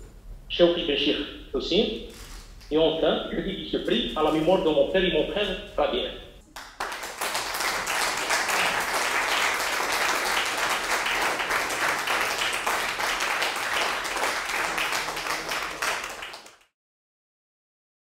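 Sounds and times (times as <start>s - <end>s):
audience applause: 6.5s - 16.7s.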